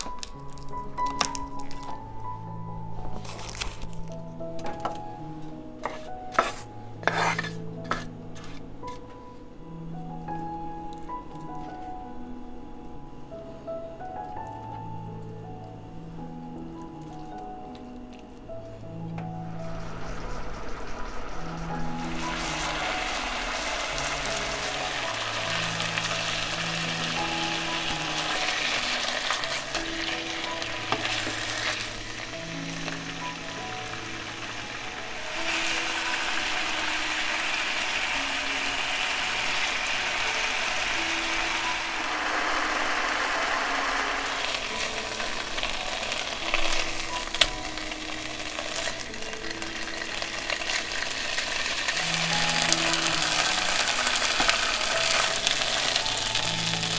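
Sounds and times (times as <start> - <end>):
food sizzling in a pan: 5.8 - 8.6, 19.3 - 56.9.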